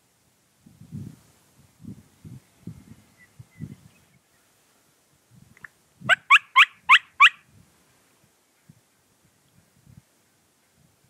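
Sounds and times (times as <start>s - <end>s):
turkey yelps: 6.1s - 7.4s.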